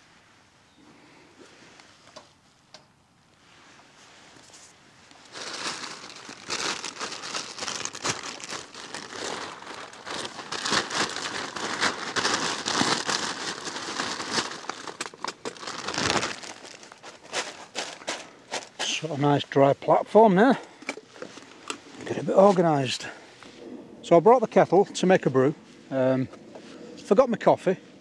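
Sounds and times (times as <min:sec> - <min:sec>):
plastic bag crinkling: 0:05.2 - 0:19.0.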